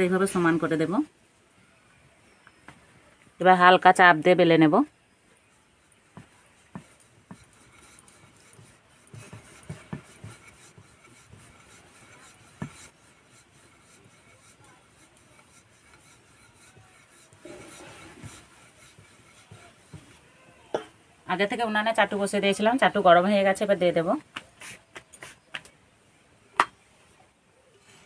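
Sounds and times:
rolling pin rubbing on dough: 0:03.8 - 0:20.3, 0:22.0 - 0:25.6
light knocks of rolling pin: 0:06.1 - 0:11.6, 0:12.5 - 0:12.9.

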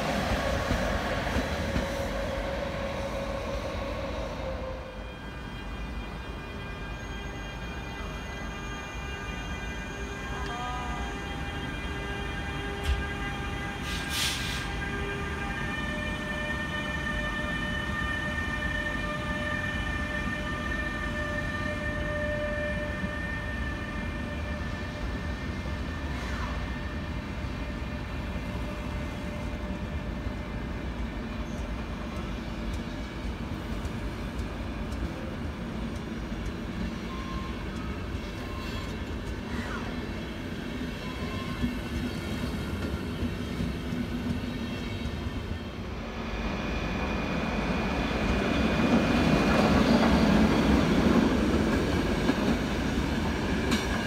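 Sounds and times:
train wheels rumbling on rails: 0:00.0 - 0:06.9, 0:09.9 - 0:54.0
brief hiss: 0:13.8 - 0:14.7.

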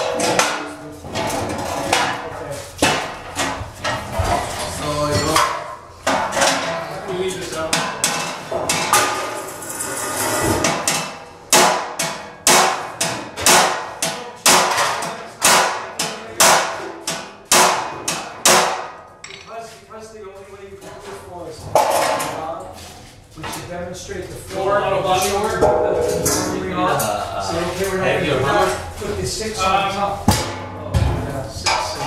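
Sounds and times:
hammer blows on steel panels: 0:10.5 - 0:19.0.

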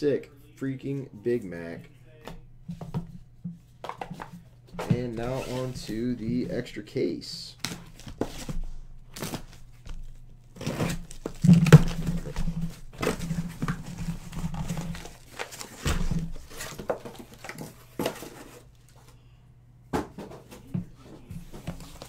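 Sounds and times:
cardboard tearing and scraping: 0:10.6 - 0:18.6
boxes knocking down: 0:10.8 - 0:18.4.

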